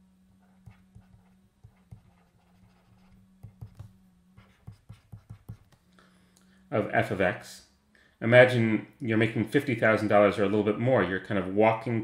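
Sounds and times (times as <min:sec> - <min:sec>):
low steady hum: 0:00.0 - 0:12.0
stylus tapping on tablet screen: 0:03.4 - 0:05.9.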